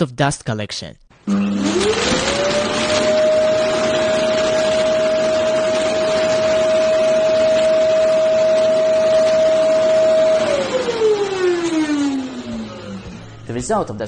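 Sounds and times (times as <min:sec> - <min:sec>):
suction motor rushing air: 0:01.3 - 0:13.5.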